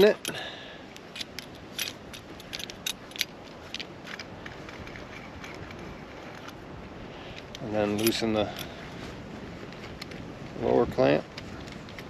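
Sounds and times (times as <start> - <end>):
metallic clicks and rattles of tool: 0.0 - 6.6, 7.3 - 8.8.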